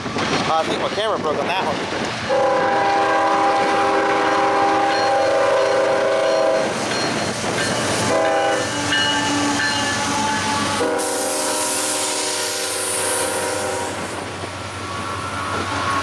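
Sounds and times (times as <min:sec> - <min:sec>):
passing train rumble: 0:00.0 - 0:16.0
locomotive air horn blasts: 0:02.3 - 0:06.7, 0:08.0 - 0:14.1.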